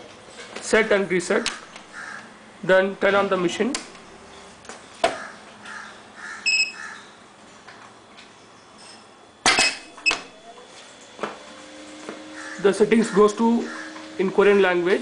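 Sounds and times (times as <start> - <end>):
short high electronic beep: 6.5 - 6.8.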